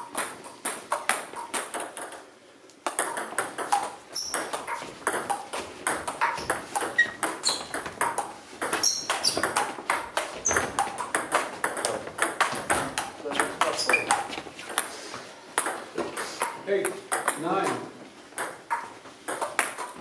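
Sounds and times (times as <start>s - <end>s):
table tennis ball clicking: 2.8s - 14.9s, 18.4s - 20.0s.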